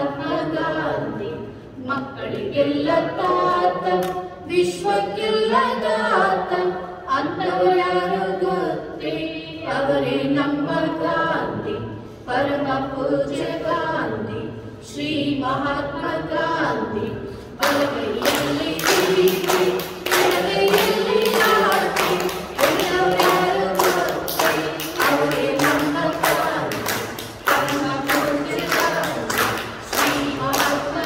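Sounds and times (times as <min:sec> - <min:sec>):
group singing: 0:00.0 - 0:31.0
hands clapping in rhythm: 0:03.9 - 0:04.3, 0:17.6 - 0:31.0.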